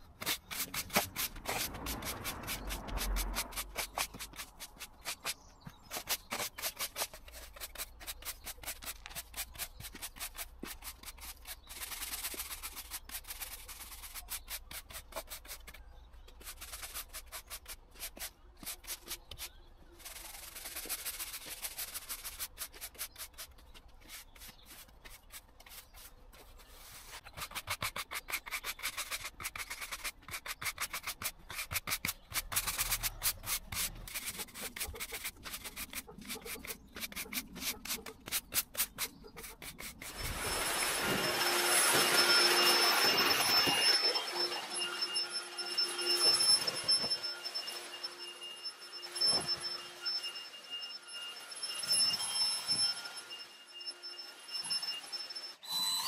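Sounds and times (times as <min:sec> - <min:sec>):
push broom sweeping on tarmac: 0:00.1 - 0:15.8, 0:16.4 - 0:44.4.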